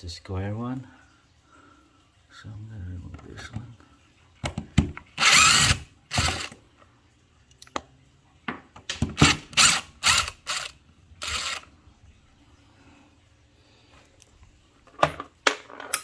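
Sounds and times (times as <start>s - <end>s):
impact driver bursts: 5.2s - 6.5s, 9.2s - 11.6s.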